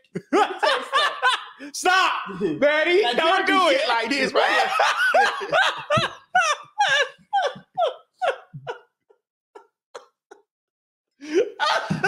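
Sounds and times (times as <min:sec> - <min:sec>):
person laughing: 0:04.4 - 0:08.9, 0:11.2 - 0:12.0.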